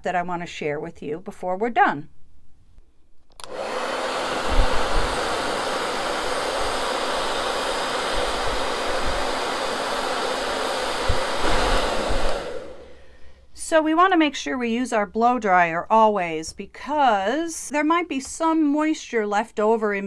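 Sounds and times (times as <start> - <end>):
hair dryer blowing: 3.4 - 13.3
air gusts on microphone: 3.6 - 13.0.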